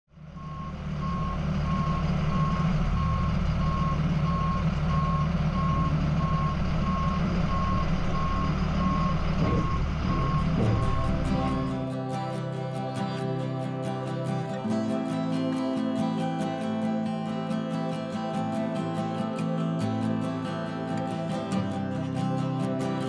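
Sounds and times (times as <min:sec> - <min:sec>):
engine running: 0:00.1 - 0:23.0
vehicle reversing alarm beeping: 0:00.2 - 0:12.3.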